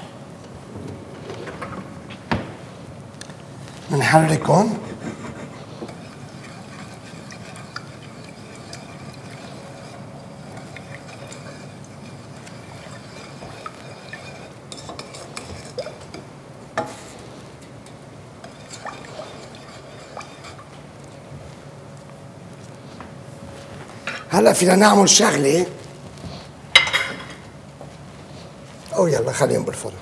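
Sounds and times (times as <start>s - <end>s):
low steady hum: 0.0s - 30.0s
wooden spoon stirring in metal pot: 3.7s - 21.4s.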